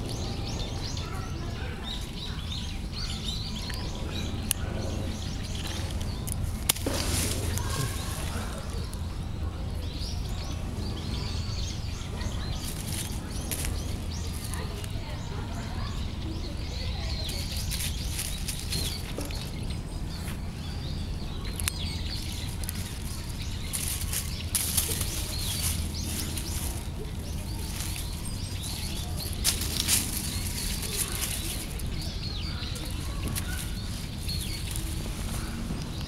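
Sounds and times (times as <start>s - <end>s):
dry leaves rustling: 5.2s - 9.3s, 11.3s - 36.0s.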